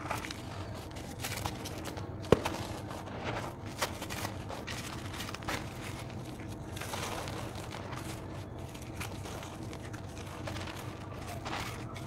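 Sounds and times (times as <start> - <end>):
dirt crumbling by hand: 0.0 - 12.0.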